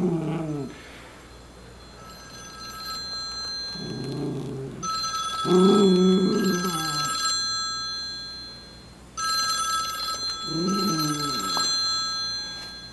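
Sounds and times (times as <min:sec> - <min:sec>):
telephone ringing: 0:01.8 - 0:04.2, 0:04.8 - 0:12.9
dog howling: 0:05.5 - 0:07.1.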